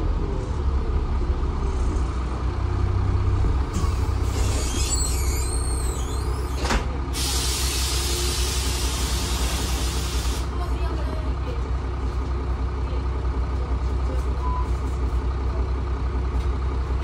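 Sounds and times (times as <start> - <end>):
bus diesel engine running: 0.0 - 17.0
high squeaks: 3.8 - 6.6.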